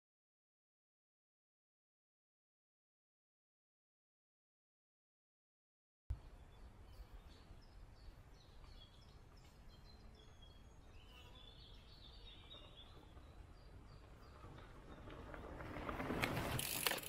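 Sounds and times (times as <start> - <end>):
birds chirping and warbling: 6.1 - 16.0
mountain bike tyres on dirt: 8.0 - 17.0.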